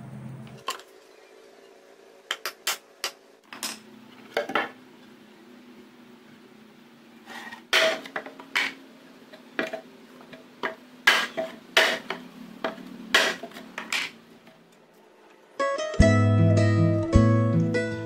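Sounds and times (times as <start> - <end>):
hammer nailing wood: 11.1 - 12.2, 13.1 - 14.1.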